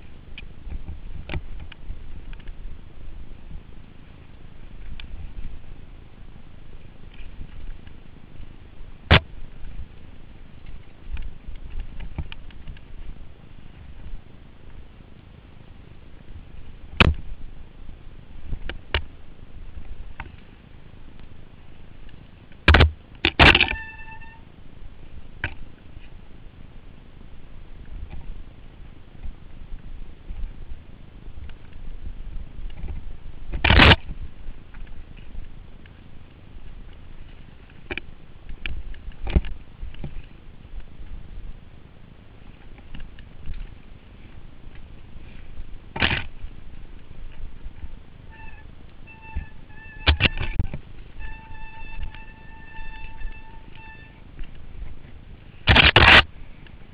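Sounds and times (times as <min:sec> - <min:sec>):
bike riding noise hiss: 0:00.0 - 0:56.9
bike rattling on rocky trail: 0:22.1 - 0:24.4, 0:42.4 - 0:56.9
bike brakes squealing: 0:23.6 - 0:24.5, 0:48.3 - 0:54.3
sharp clatter: 0:55.6 - 0:56.3.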